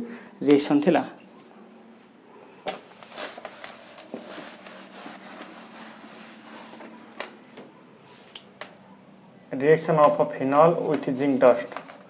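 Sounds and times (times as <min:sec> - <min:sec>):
duster rubbing on chalkboard: 0:03.0 - 0:07.0.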